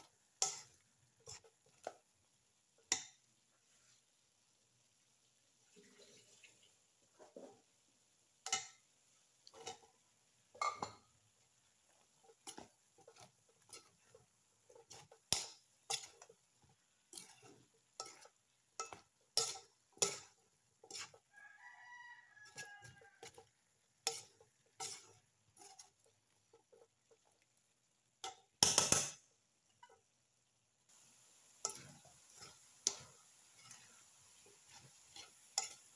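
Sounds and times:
metal spatula scraping a wok: 0:00.0 - 0:02.1, 0:09.4 - 0:11.0, 0:11.7 - 0:27.4, 0:30.9 - 0:35.9.

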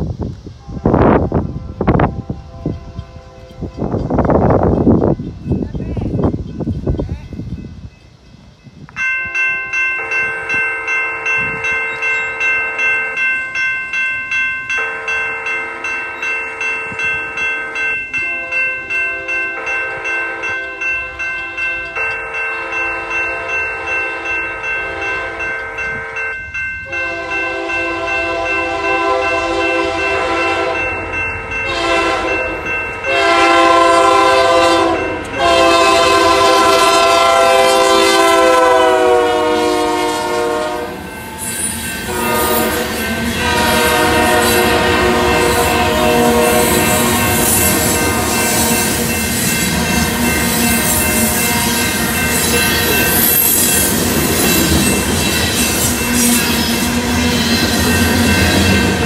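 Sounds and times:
train wheels on rails: 0:00.0 - 0:59.0
locomotive horn blasts: 0:00.6 - 0:04.1, 0:18.2 - 0:41.4, 0:42.0 - 0:49.1, 0:49.7 - 0:52.7.

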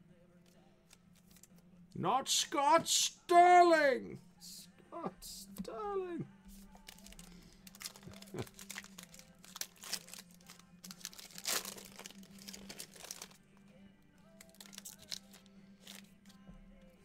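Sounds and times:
foil wrapper crinkling: 0:06.7 - 0:13.4, 0:14.4 - 0:16.1.

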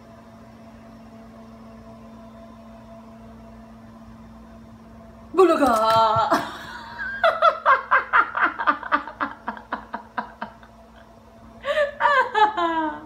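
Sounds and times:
person laughing: 0:05.4 - 0:13.0.

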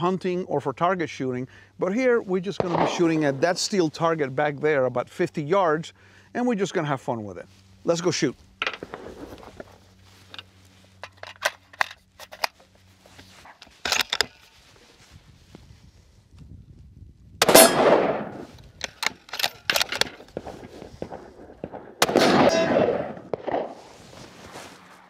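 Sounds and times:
rifle shots: 0:02.6 - 0:03.6, 0:17.4 - 0:18.6, 0:19.4 - 0:24.0
rifle handling clicks: 0:10.3 - 0:12.7, 0:13.5 - 0:14.4, 0:17.4 - 0:21.2.

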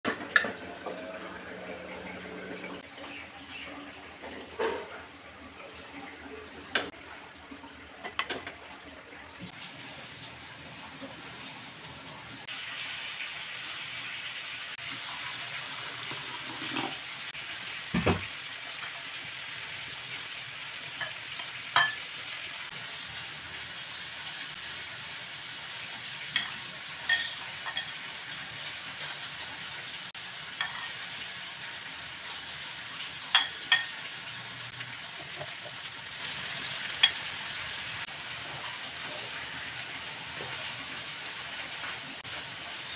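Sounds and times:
glass bowl clinking on metal: 0:00.1 - 0:02.8, 0:21.0 - 0:22.0, 0:26.3 - 0:28.0, 0:33.3 - 0:34.0.

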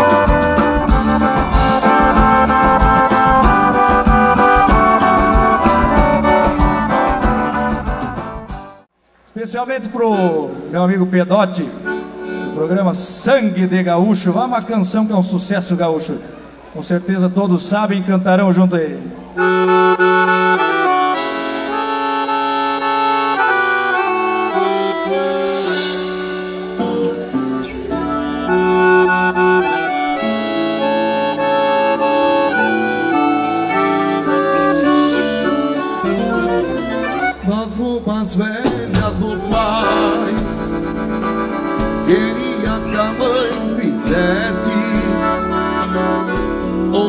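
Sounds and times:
drum beat: 0:00.0 - 0:08.8, 0:38.6 - 0:46.6
piano accordions playing: 0:00.0 - 0:08.9, 0:10.2 - 0:16.7, 0:18.6 - 0:47.0.

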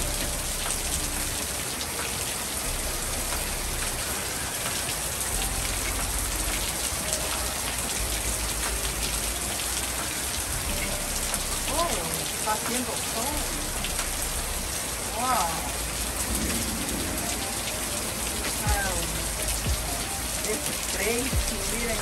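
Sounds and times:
steady rain on pavement: 0:00.0 - 0:22.0.

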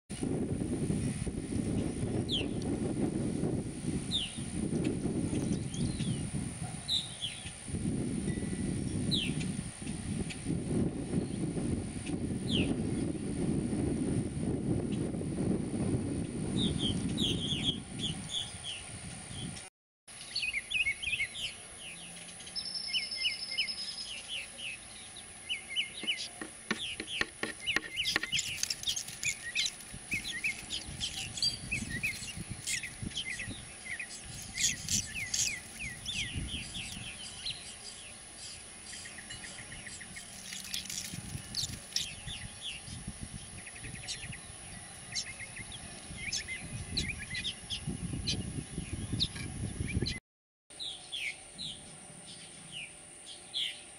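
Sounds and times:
birds chirping: 0:04.1 - 0:07.7, 0:08.3 - 0:10.5, 0:16.5 - 0:53.9
bird clicks: 0:26.0 - 0:31.2.

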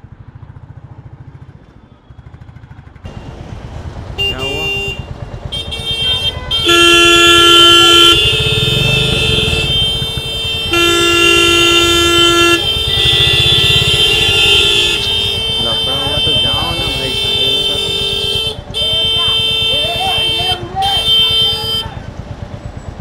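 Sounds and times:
motorcycle engine idling: 0:00.0 - 0:23.0
vehicle horns honking: 0:04.1 - 0:22.2.

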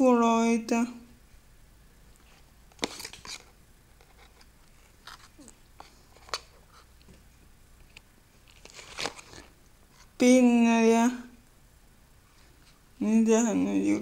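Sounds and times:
packaging rustling: 0:02.7 - 0:06.8, 0:08.4 - 0:09.6.

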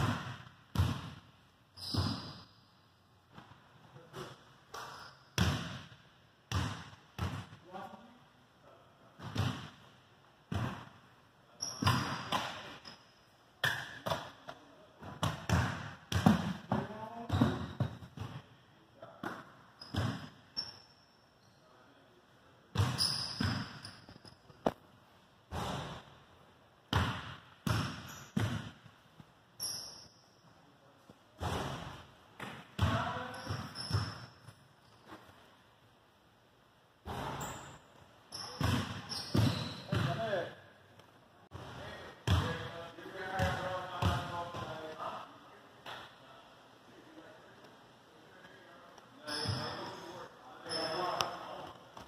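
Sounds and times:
short high squeaks: 0:23.0 - 0:24.4, 0:29.6 - 0:30.3, 0:37.4 - 0:39.9, 0:49.2 - 0:51.2.

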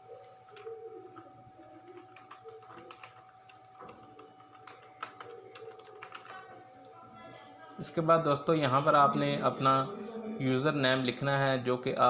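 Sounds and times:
computer keyboard typing: 0:00.0 - 0:07.0.

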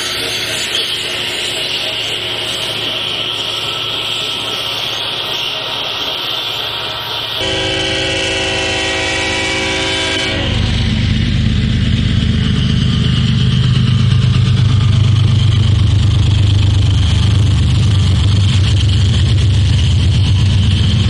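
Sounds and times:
diesel locomotive rumble: 0:00.0 - 0:21.0
locomotive air horn: 0:07.4 - 0:11.0.

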